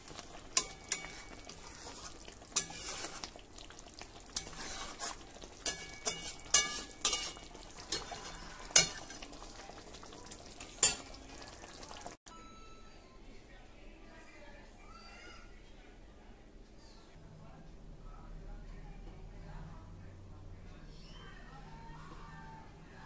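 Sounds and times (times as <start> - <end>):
spatula scraping a pan: 0.0 - 9.7, 10.4 - 11.2
food sizzling in a pan: 0.0 - 12.2.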